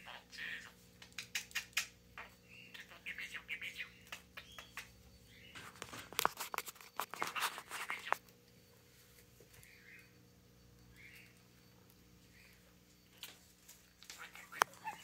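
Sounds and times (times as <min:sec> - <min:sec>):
budgerigar chattering: 0:00.0 - 0:05.5, 0:14.2 - 0:15.0.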